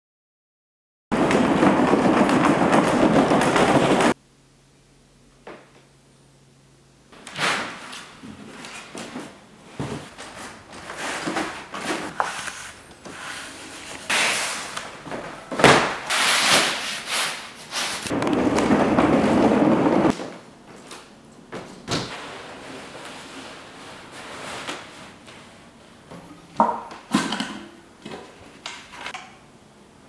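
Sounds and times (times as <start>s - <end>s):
canvas rustling and flapping: 1.2s - 4.2s.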